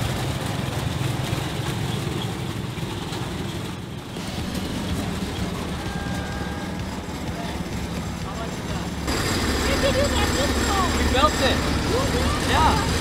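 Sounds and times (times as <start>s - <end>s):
tank engine rumbling: 0.0s - 13.0s.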